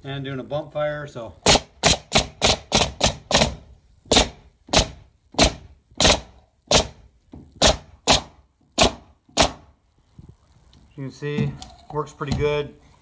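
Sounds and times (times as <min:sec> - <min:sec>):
pneumatic nailer firing into wood: 0:01.4 - 0:09.7.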